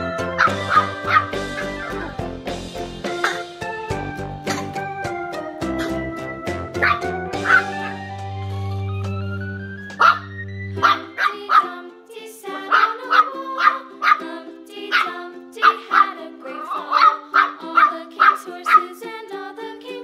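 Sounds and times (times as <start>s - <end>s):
background music: 0.0s - 20.0s
puppy barking: 0.4s - 2.0s, 6.8s - 8.0s, 10.0s - 11.7s.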